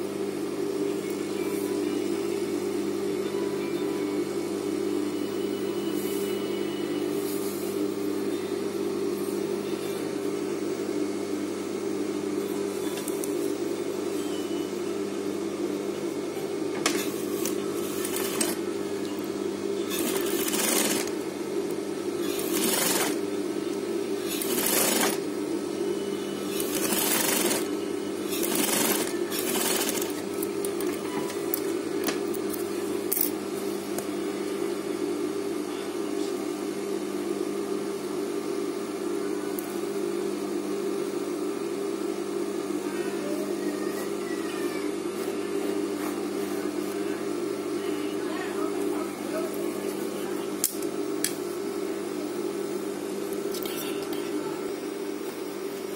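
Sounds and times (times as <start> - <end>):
sewing machine motor humming: 17.3 - 18.6, 19.8 - 21.2, 22.2 - 23.3, 24.2 - 25.3, 26.5 - 31.6
sewing machine stitching: 17.4 - 18.6, 19.9 - 21.1, 22.2 - 23.2, 24.3 - 25.2, 26.6 - 27.7, 28.3 - 30.2.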